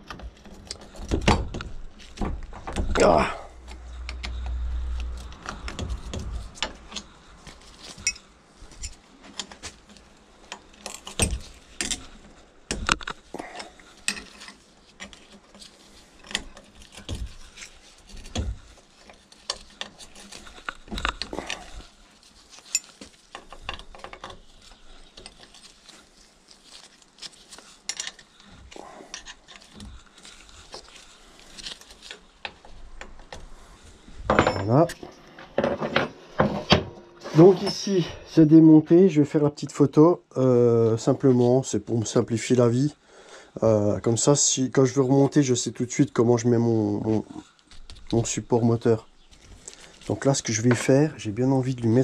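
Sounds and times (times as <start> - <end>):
metal tools clinking: 7.8 - 26.1, 34.2 - 38.0.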